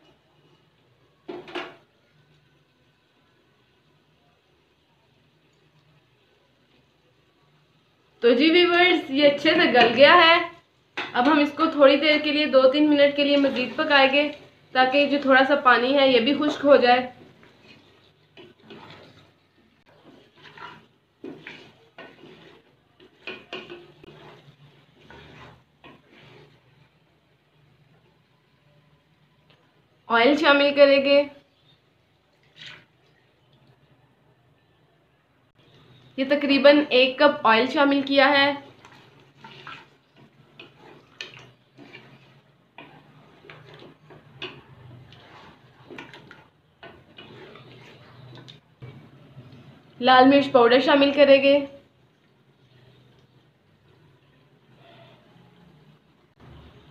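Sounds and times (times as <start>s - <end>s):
spoon scraping cooking pot: 10.9s - 27.0s, 37.2s - 49.2s.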